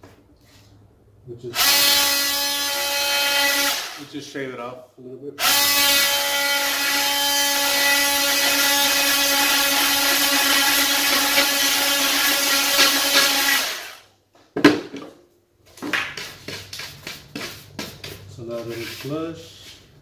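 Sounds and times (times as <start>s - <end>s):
cordless power tool shaving wood: 5.4s - 14.0s
tool knocking as set down: 14.6s - 15.2s
hand brush sweeping: 16.2s - 20.0s.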